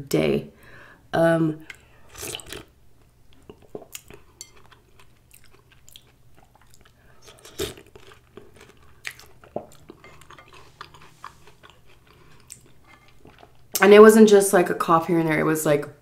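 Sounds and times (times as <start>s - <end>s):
chewing: 3.3s - 13.8s.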